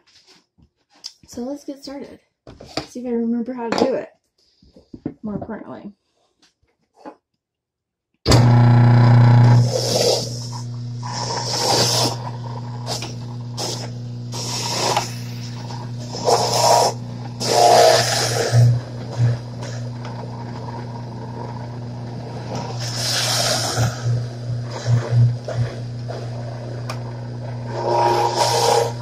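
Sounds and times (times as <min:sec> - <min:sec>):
juicer grinding vegetables: 0:08.3 - 0:29.0
juicer motor hum: 0:08.3 - 0:29.0.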